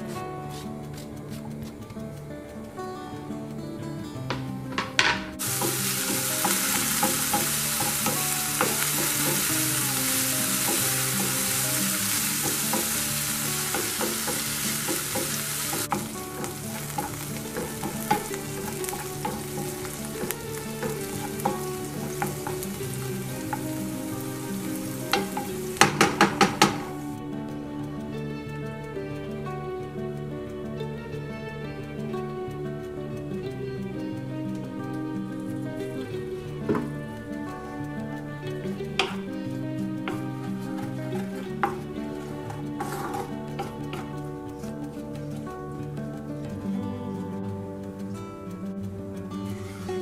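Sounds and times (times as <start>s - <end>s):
wooden spoon knocking on a pan: 4.3s - 27.0s, 36.7s - 36.9s, 39.0s - 39.2s, 41.2s - 44.1s
onions sizzling in a frying pan: 4.3s - 27.2s, 35.8s - 47.1s, 48.8s - 50.0s.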